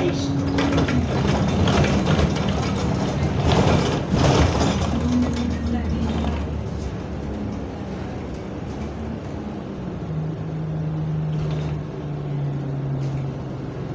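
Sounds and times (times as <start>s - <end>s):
faint rattles: 0.0s - 9.0s
bus engine hum: 0.0s - 13.9s.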